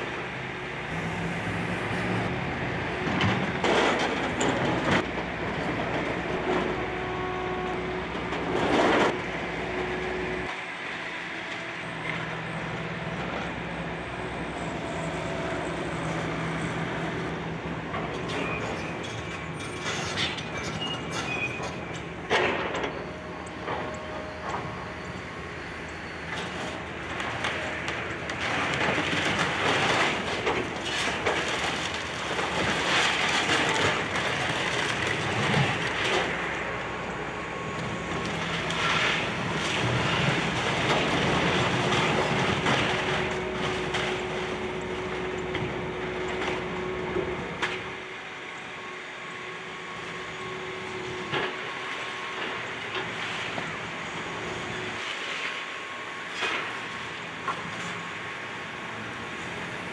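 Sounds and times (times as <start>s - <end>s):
excavator engine under load: 0.0s - 59.9s
debris crunching and grinding: 26.6s - 37.1s.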